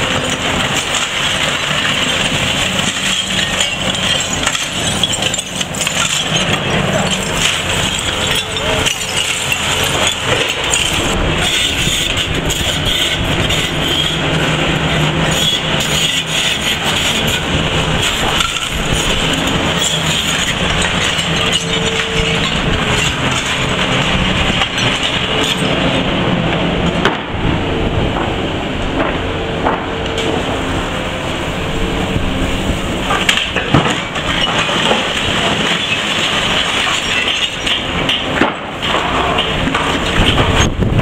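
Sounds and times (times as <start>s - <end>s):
rubble crunching and clattering: 0.0s - 27.4s, 33.0s - 41.0s
excavator diesel engine and hydraulics: 0.0s - 41.0s.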